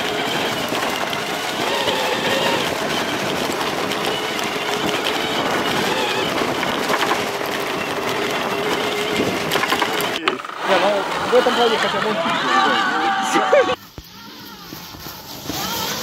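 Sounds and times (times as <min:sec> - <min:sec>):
electric motor whine: 0:00.0 - 0:10.2
wind on microphone: 0:00.0 - 0:10.2
tyre noise: 0:00.0 - 0:16.0.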